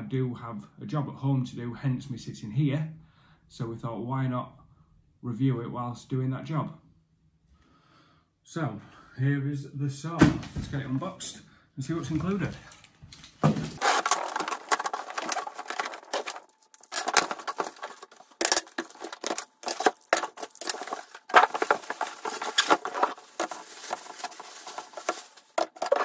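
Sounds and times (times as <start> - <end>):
cardboard and plastic rustling: 13.4 - 26.0.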